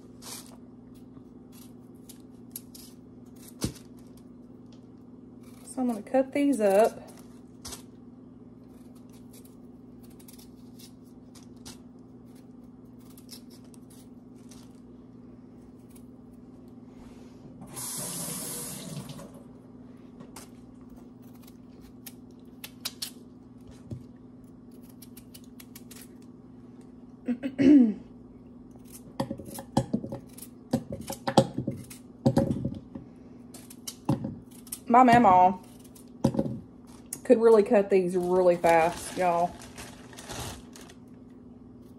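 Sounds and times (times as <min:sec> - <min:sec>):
steady low hum: 0:00.0 - 0:41.9.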